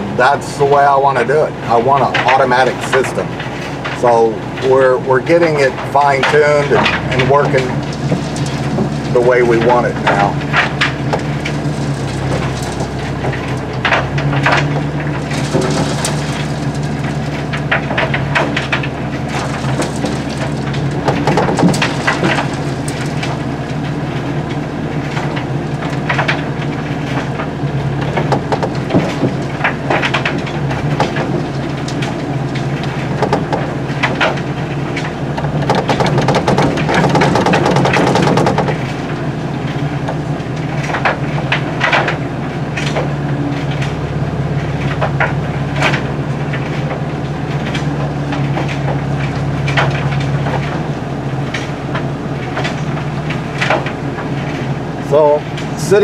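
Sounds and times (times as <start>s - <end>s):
excavator engine running: 0.0s - 56.0s
rocks rattling in trommel: 0.0s - 56.0s
rocks clattering into steel hopper: 0.2s - 56.0s.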